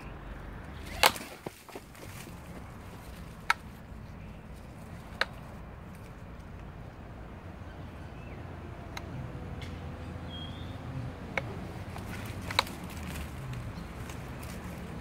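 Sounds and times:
dry twigs snapping: 0:00.6 - 0:06.7, 0:11.3 - 0:15.0.

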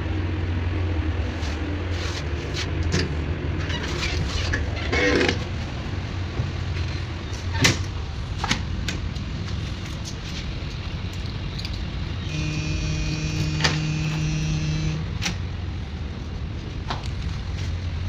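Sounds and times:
ship machinery humming: 0:11.3 - 0:15.9
steady pitched tone: 0:12.3 - 0:15.1.

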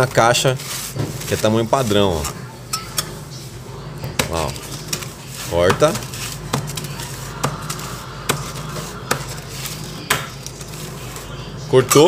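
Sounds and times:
blade knocking through pizza crust: 0:04.1 - 0:11.3.

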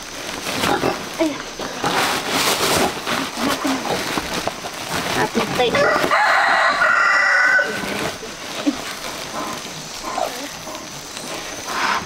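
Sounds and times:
quiet farmyard sounds: 0:03.2 - 0:12.0
rooster crowing: 0:05.7 - 0:08.0.

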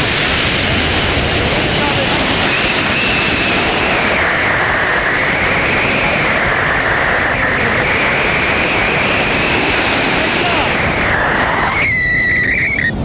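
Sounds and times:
wind rushing across microphone: 0:00.0 - 0:13.0
high wavering whistle: 0:02.5 - 0:04.2, 0:11.2 - 0:13.0.

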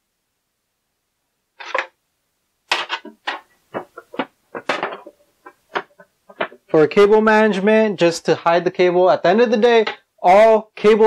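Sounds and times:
cable scraping and knocking: 0:01.6 - 0:01.9, 0:02.7 - 0:06.8.

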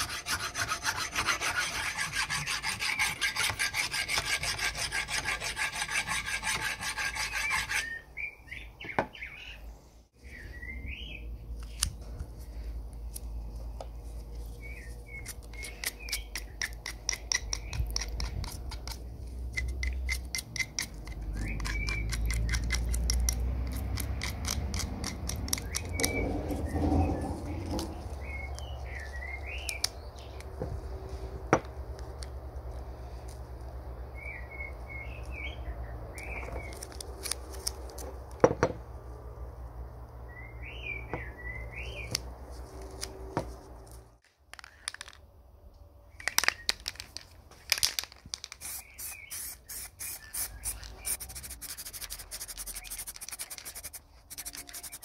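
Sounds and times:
hand filing rasping strokes: 0:00.0 - 0:08.0, 0:48.7 - 0:55.0
light scraping strokes: 0:48.6 - 0:55.0.

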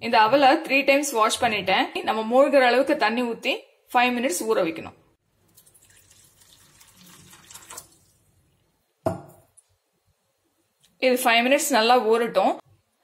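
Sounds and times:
water pouring into a pot: 0:05.4 - 0:08.5.

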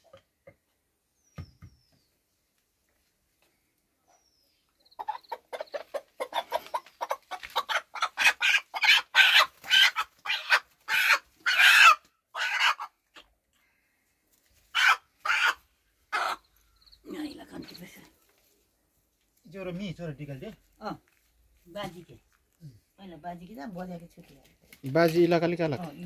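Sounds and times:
rooster squawking: 0:05.8 - 0:12.9, 0:14.7 - 0:16.4.

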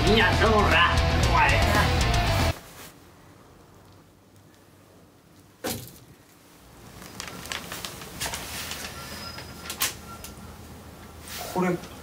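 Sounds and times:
paper rustling and crackling: 0:06.8 - 0:10.0.

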